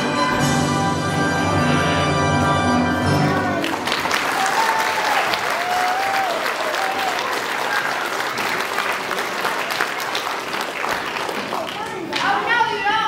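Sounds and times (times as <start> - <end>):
audience applauding: 3.1 - 12.5
calls and whoops: 4.3 - 8.1.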